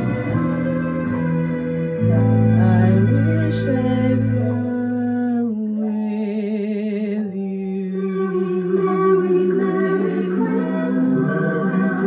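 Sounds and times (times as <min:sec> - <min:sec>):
soft instrumental backing: 0:00.0 - 0:12.0
woman singing with vibrato: 0:02.6 - 0:12.0.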